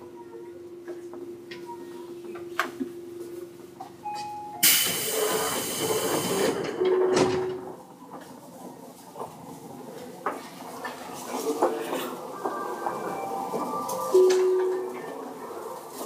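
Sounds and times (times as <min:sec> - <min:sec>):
train compressed air hiss: 0:04.6 - 0:06.5.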